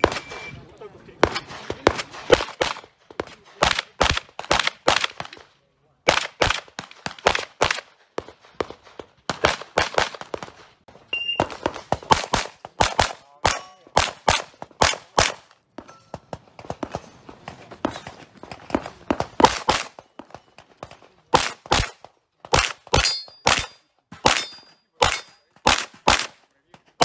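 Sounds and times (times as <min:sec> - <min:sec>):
handgun shots: 0:21.3 - 0:26.4.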